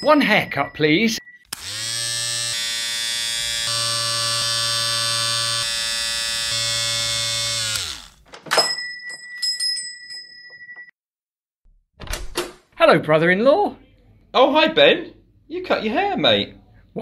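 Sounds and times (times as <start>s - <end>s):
electric hair clippers buzzing: 1.5s - 8.2s.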